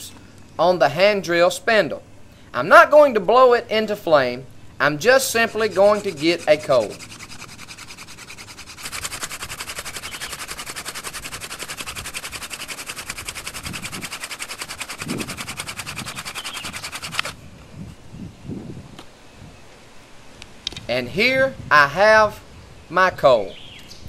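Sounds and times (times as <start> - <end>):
wooden spindle rasping on wood: 5.3 - 17.4.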